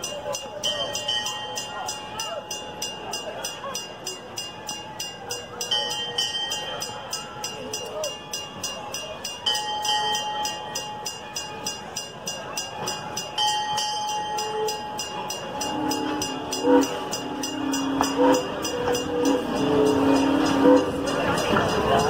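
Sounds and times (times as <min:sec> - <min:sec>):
steam train rolling past: 0:00.0 - 0:22.0
high train whistle: 0:14.4 - 0:22.0.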